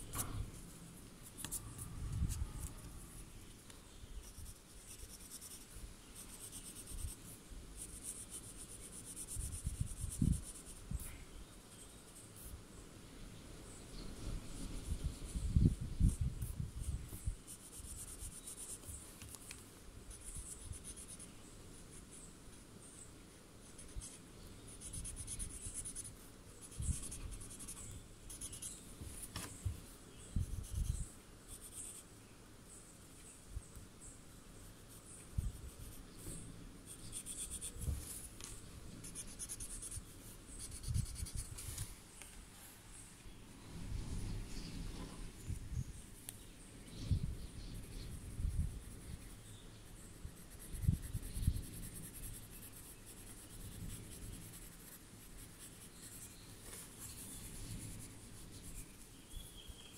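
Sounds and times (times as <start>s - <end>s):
pencil scratching on paper: 4.2s - 11.1s, 14.7s - 19.4s, 20.1s - 21.3s, 23.6s - 32.1s, 34.6s - 41.6s, 47.7s - 59.9s.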